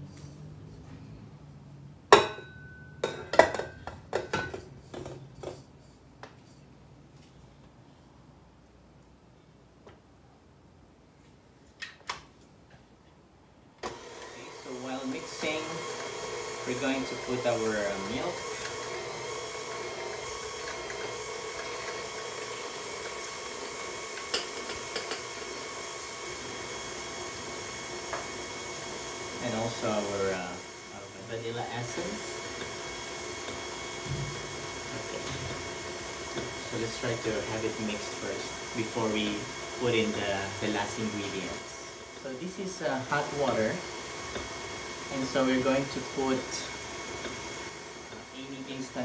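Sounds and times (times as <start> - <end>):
stand mixer motor whining: 13.8 - 49.0
metal bowl clanking on mixer: 23.7 - 25.6.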